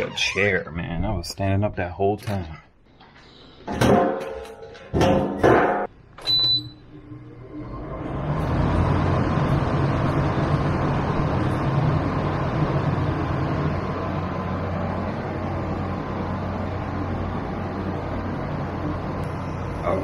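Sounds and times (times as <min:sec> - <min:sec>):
air conditioner fan rushing air: 0:07.0 - 0:20.0.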